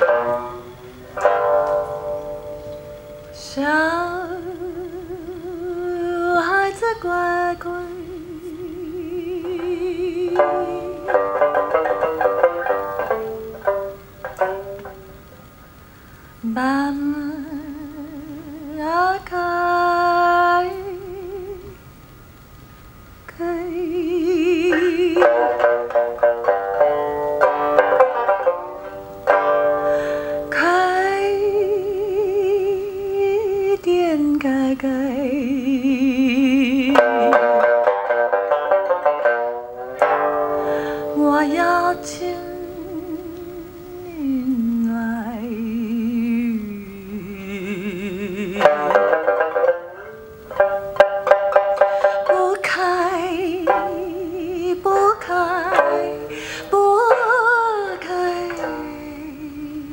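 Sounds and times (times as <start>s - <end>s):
woman singing with vibrato: 0.0s - 15.3s, 16.3s - 21.9s, 23.3s - 59.9s
plucked sanxian: 0.0s - 15.8s, 23.3s - 33.6s, 34.4s - 59.9s
acoustic guitar: 0.0s - 17.1s, 24.4s - 32.0s, 34.3s - 45.3s, 46.3s - 59.5s.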